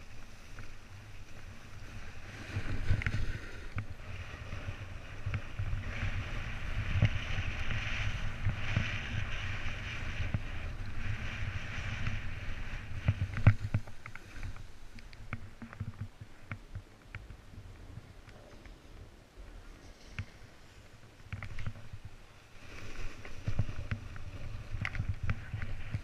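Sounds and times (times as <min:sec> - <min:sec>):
snowboard scraping over snow: 0:00.0 - 0:15.8, 0:21.7 - 0:26.0
wind rumble on microphone: 0:00.0 - 0:26.0.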